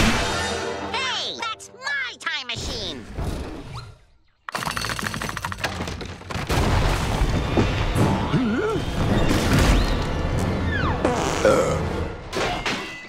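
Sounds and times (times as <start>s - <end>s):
fast cartoon rattle: 4.5s - 6.0s.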